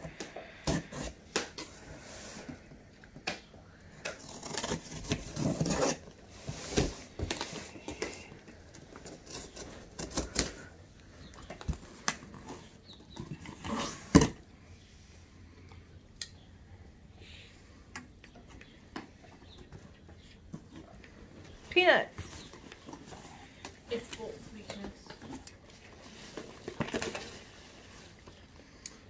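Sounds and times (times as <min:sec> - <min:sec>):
cardboard scraping and rustling: 0:04.2 - 0:10.6.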